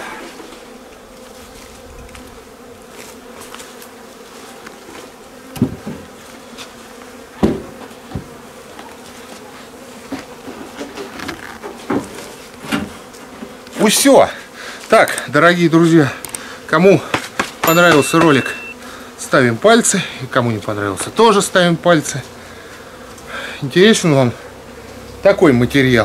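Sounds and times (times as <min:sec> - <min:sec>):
bees buzzing: 0:00.0 - 0:26.0
hive boxes knocking: 0:05.5 - 0:06.2, 0:07.3 - 0:08.9, 0:16.9 - 0:18.7.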